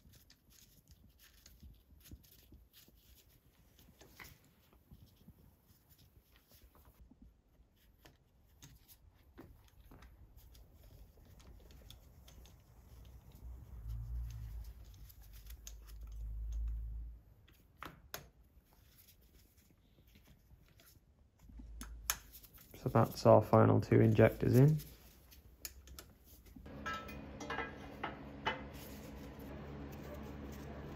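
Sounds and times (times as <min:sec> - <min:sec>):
clicks and rubbing of parts: 0:08.0 - 0:22.8, 0:24.4 - 0:29.1.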